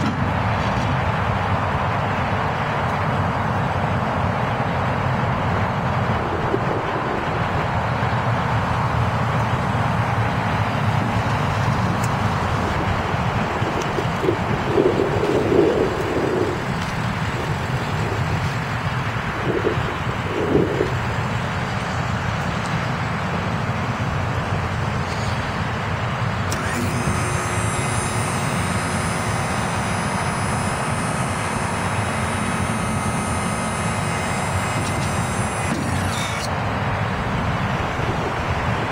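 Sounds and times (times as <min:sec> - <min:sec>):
low rumble: 0:05.4 - 0:22.1
hydraulic pump motor whining: 0:26.4 - 0:36.6.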